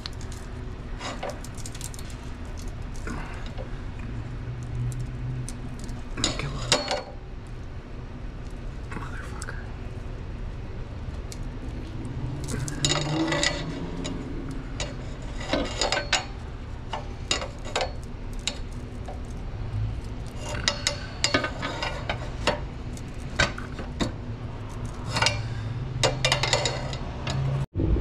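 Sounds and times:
steady low hum: 0.0s - 28.0s
pry bar tapping metal pipe: 25.0s - 27.4s.

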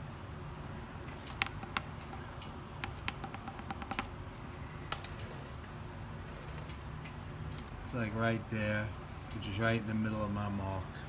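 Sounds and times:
plastic funnel clicks and taps: 1.3s - 2.2s, 2.8s - 4.1s.

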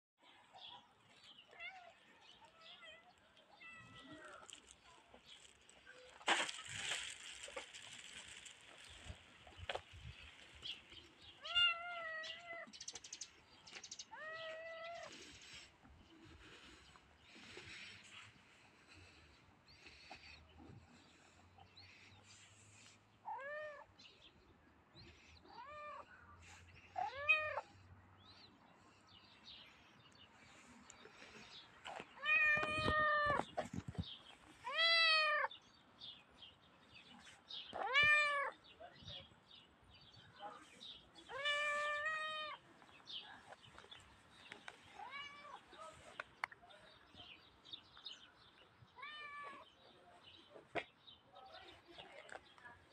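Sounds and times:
cat meowing: 11.4s - 12.7s, 34.7s - 35.5s, 37.8s - 38.5s, 49.0s - 49.6s.

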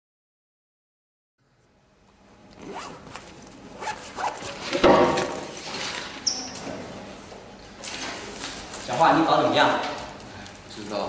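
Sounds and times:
backpack zipper rasping: 2.6s - 4.8s.

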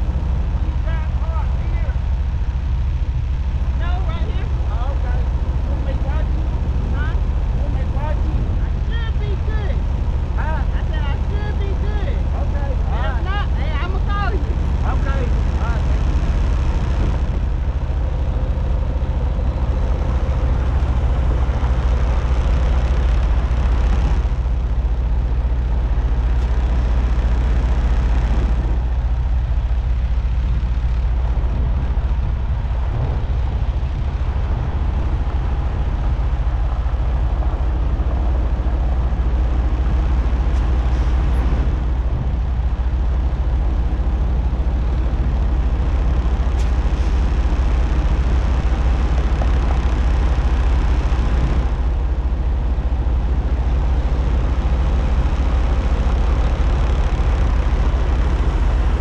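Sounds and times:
rushing noise: 0.0s - 59.0s
truck diesel engine droning: 0.0s - 59.0s.

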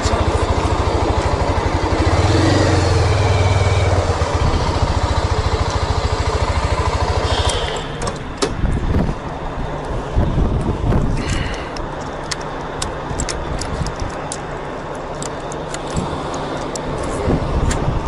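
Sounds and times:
motorcycle engine running: 0.0s - 11.2s.

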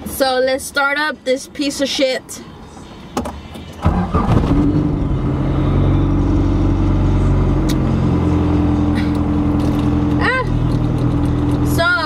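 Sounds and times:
car engine starting and idling: 2.8s - 12.0s.

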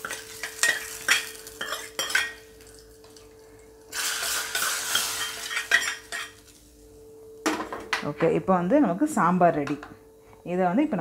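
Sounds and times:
hot oil hissing sizzle: 0.0s - 6.8s.

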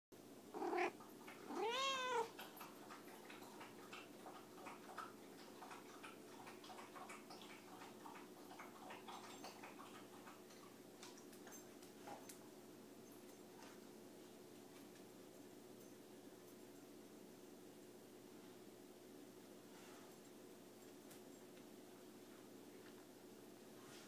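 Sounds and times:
cat meowing: 0.6s - 2.3s.

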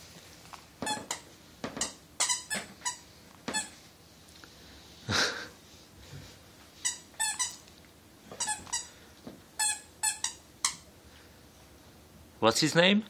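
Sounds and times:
dog toy squeaking: 0.8s - 3.8s, 6.8s - 7.6s, 8.4s - 8.9s, 9.6s - 10.8s.

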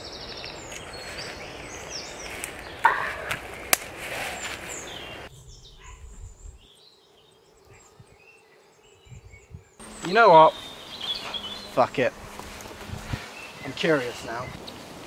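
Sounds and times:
footsteps crunching dry leaves: 0.0s - 5.3s, 9.8s - 15.0s
twigs snapping: 2.2s - 4.7s
faint bird chirps: 4.4s - 11.9s.

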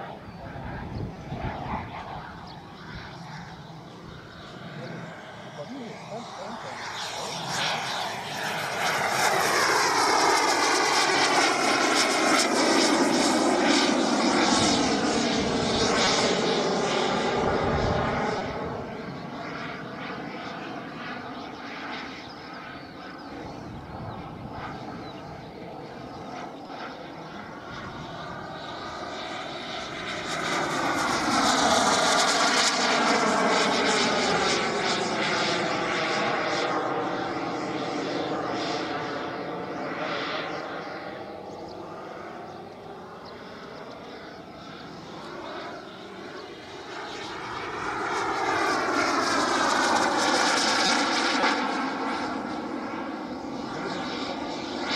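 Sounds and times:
model jet engine whine: 0.0s - 54.9s.

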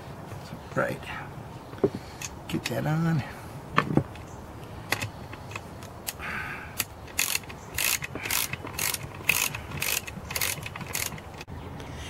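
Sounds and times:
ratchet wrench clicking: 6.8s - 11.4s.

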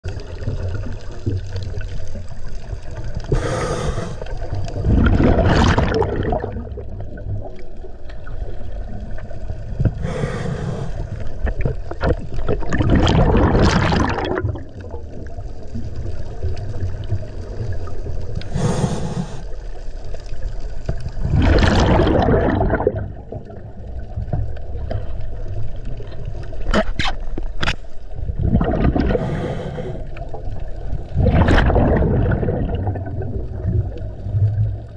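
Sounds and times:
exhaled bubbles rushing: 0.0s - 19.4s, 20.4s - 26.4s, 28.1s - 34.9s
diver breathing through regulator: 3.3s - 4.4s, 9.9s - 11.3s, 18.4s - 19.5s, 29.0s - 30.2s.

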